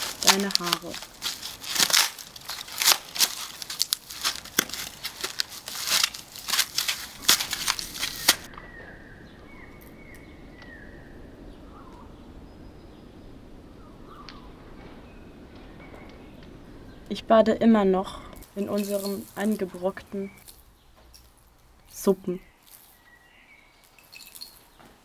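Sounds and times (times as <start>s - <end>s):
foam crunching underfoot: 0.0s - 8.5s
low steady background noise: 0.0s - 25.0s.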